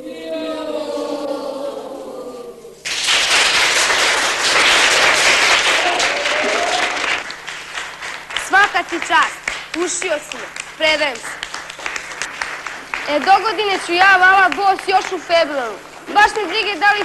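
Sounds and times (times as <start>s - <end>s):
children chanting: 0.0s - 2.8s
children clapping and cheering: 2.8s - 17.0s.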